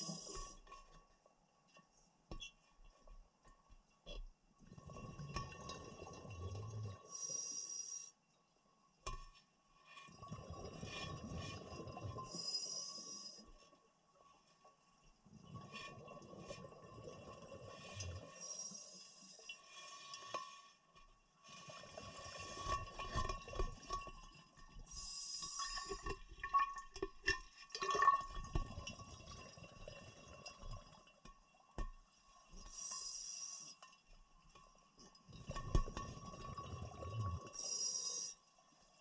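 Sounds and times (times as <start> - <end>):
faint steady tone: 5.8 - 10.4, 11.5 - 15.8, 17.1 - 21.8, 24.1 - 26.3, 29.8 - 35.9, 36.5 - 39.0
scuba regulator breaths hissing: 24.9 - 26.0, 32.7 - 33.8, 37.6 - 38.4.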